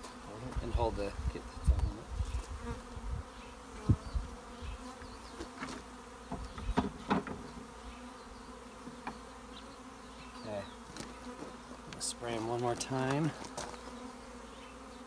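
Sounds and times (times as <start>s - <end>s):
honeybees buzzing: 0.0s - 15.0s
wooden knocks: 6.3s - 7.4s.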